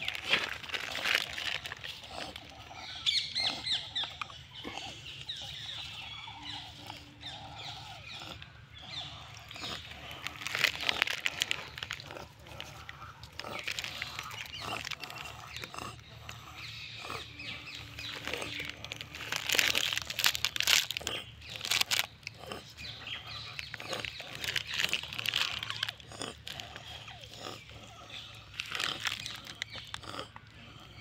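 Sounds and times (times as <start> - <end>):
crunching and rustling leaves: 0.0 - 3.6, 8.9 - 16.0, 17.1 - 27.6, 28.2 - 30.5
monkey calls: 0.0 - 31.0.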